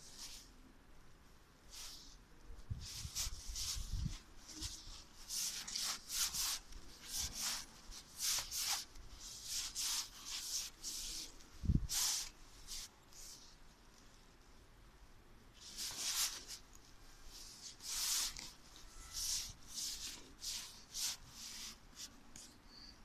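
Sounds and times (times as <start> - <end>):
scratchy rubbing on microphone: 2.7 - 13.4.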